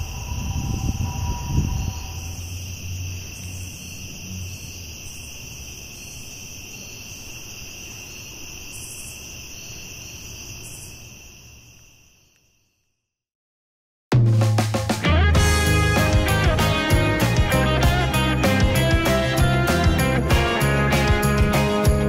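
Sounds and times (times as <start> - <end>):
low rumble: 0.0 - 2.5
insects trilling: 0.0 - 12.9.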